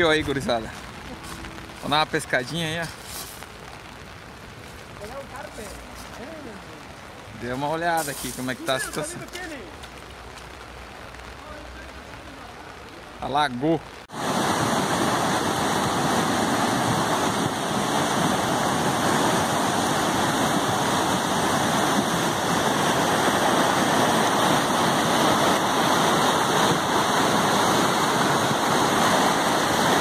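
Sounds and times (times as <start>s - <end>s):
floodwater rushing in stream: 0.0s - 30.0s.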